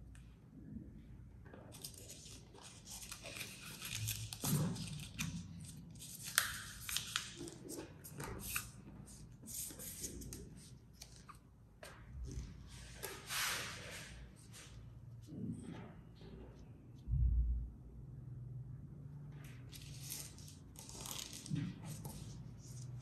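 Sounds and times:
paper bill rustling and crinkling: 1.8s - 11.5s, 19.7s - 23.0s.

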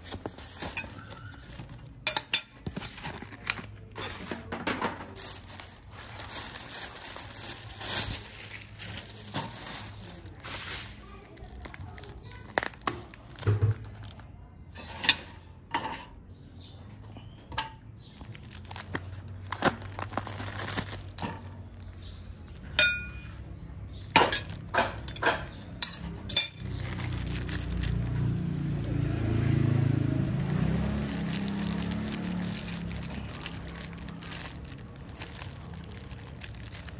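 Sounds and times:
dishes and cutlery clinking: 0.6s - 5.1s, 14.7s - 16.3s, 22.7s - 23.4s, 24.2s - 26.8s.

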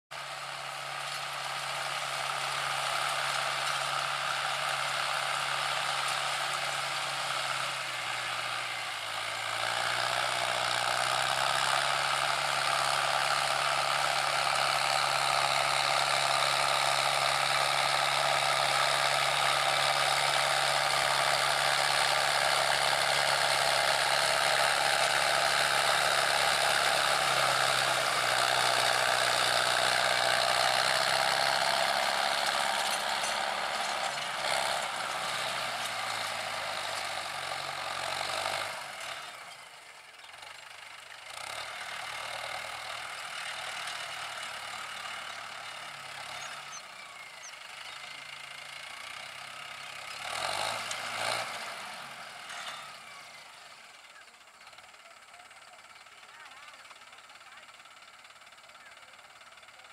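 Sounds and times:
tractor diesel engine under load: 0.1s - 59.9s
rotary tiller mechanical clatter: 0.9s - 59.9s.

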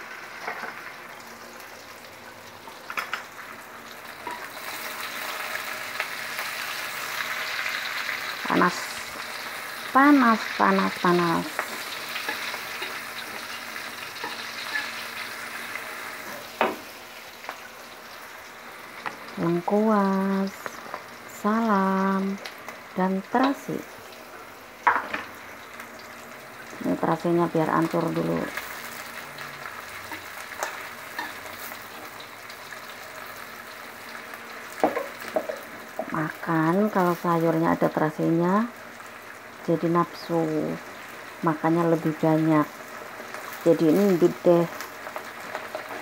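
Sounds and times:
food sizzling in hot oil: 0.0s - 46.0s.

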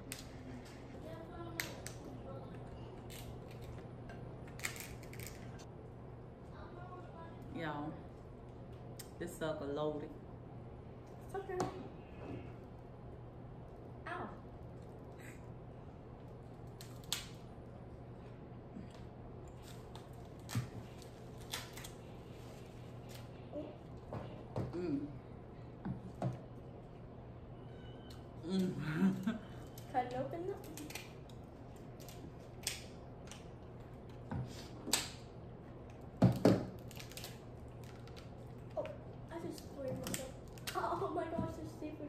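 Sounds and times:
crab shells cracking: 4.4s - 5.6s, 30.6s - 33.5s, 36.8s - 38.7s
crab shell cracking: 4.5s - 5.6s, 31.8s - 33.5s.

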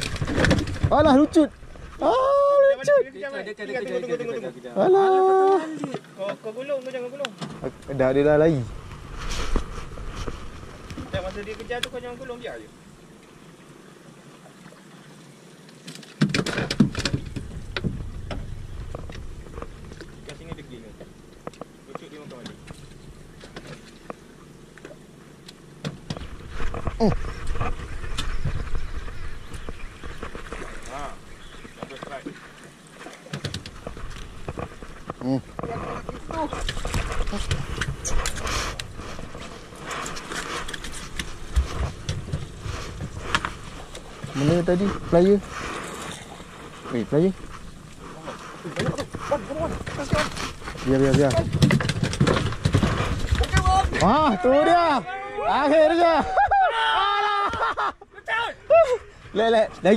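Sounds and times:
knocks and clatter on boat: 0.0s - 1.8s, 9.6s - 12.1s, 16.1s - 24.2s, 25.8s - 32.5s, 33.3s - 45.4s, 48.6s - 54.4s
quiet hiss: 0.0s - 59.9s
low rumbling noise: 7.6s - 11.5s, 16.8s - 21.9s.

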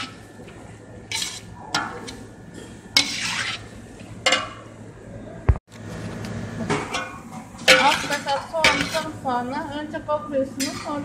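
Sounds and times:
spoon scraping a metal pot: 1.1s - 2.2s, 3.0s - 3.7s, 7.7s - 9.2s, 10.6s - 11.0s.

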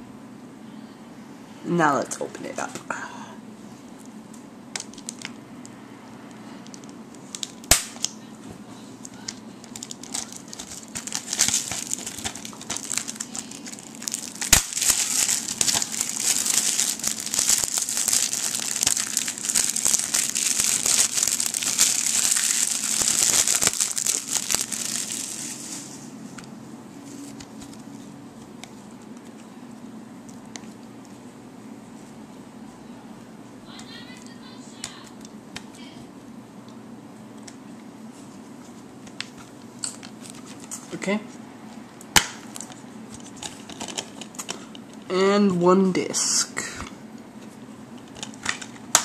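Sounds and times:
plastic shrink-wrap tearing: 4.8s - 5.3s, 9.6s - 26.0s
plastic crinkling: 4.8s - 5.4s, 6.6s - 8.1s, 9.1s - 26.1s.

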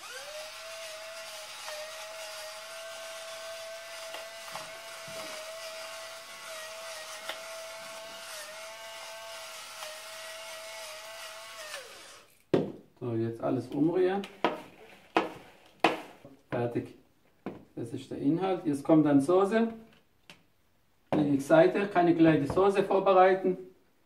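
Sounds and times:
electric pepper mill grinding: 0.0s - 12.4s.

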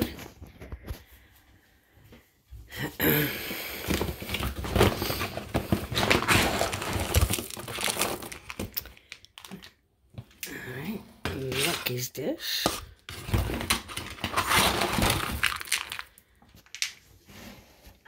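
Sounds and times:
cat food bag crinkling: 4.1s - 9.7s, 13.2s - 16.8s.

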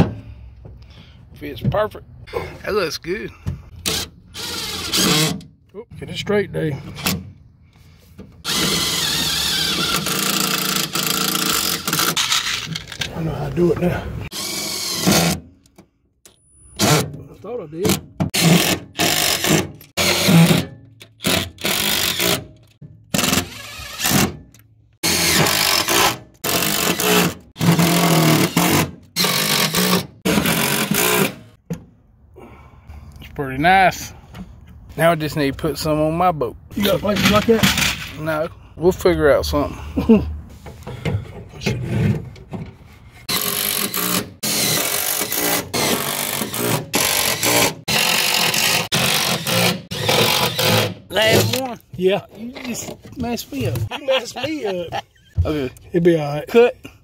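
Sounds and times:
power drill driving screws into metal: 3.8s - 5.5s, 8.4s - 13.0s, 14.3s - 15.5s, 17.8s - 31.5s, 43.3s - 51.6s.

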